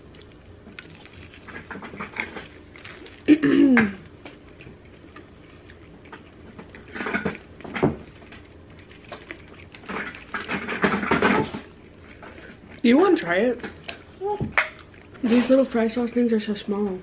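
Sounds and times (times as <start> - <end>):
chewing: 0.0 - 15.8
paper wrappers rustling: 0.2 - 3.4.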